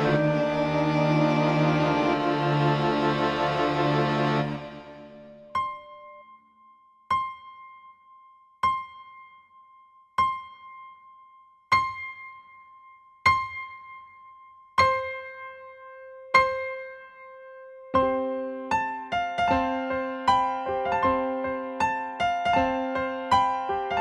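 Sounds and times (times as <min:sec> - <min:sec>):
piano notes ringing: 0:00.0 - 0:06.4.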